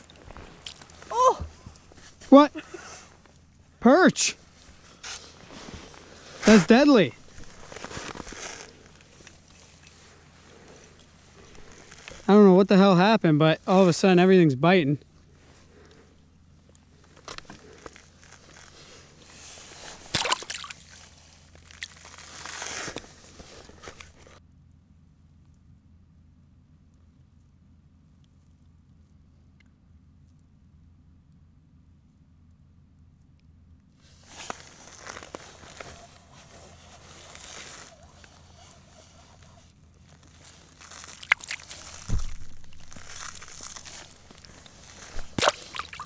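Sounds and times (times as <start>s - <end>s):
low steady hum: 0.0s - 46.0s
footsteps crunching on snowy ice: 4.6s - 10.8s, 34.2s - 46.0s
water sloshing and splashing: 20.0s - 22.2s, 40.4s - 46.0s.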